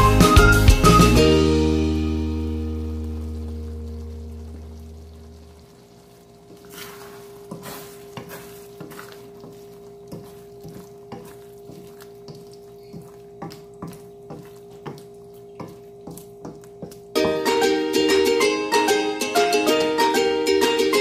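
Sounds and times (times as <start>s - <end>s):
utensil scraping metal wok: 6.5s - 11.5s.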